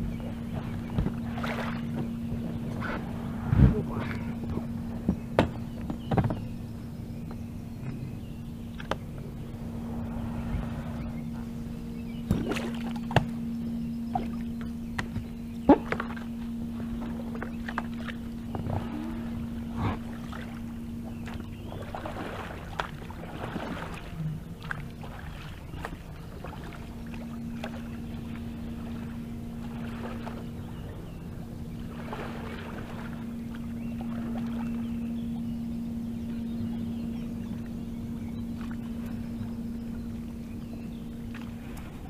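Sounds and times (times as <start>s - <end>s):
steady low hum: 0.0s - 42.0s
paddle splashing in water: 0.2s - 6.5s, 12.2s - 13.4s, 14.1s - 30.8s, 31.8s - 34.9s.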